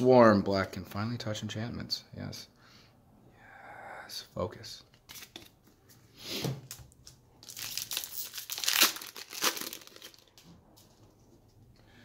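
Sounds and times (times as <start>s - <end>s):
foil wrapper crinkling: 7.4s - 10.4s.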